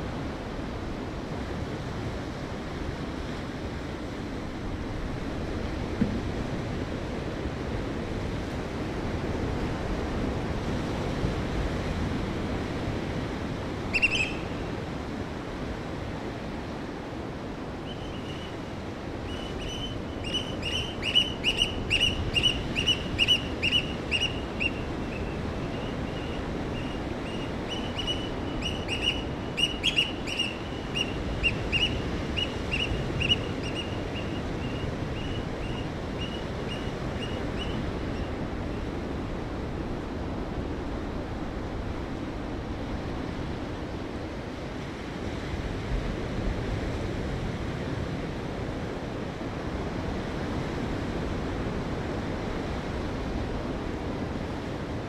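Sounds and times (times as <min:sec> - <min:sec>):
small bird chirping: 0:13.9 - 0:14.6, 0:19.3 - 0:38.3.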